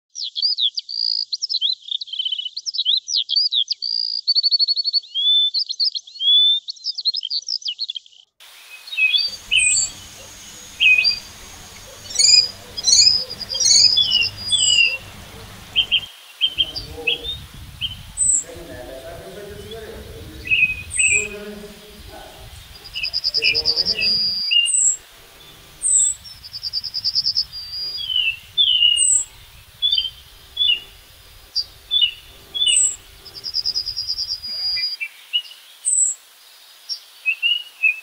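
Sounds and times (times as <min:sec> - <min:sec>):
songbirds singing: 0:06.6 - 0:36.2
sharp bird chirps: 0:08.7 - 0:35.5
low steady rumble: 0:09.3 - 0:24.3, 0:25.0 - 0:34.8.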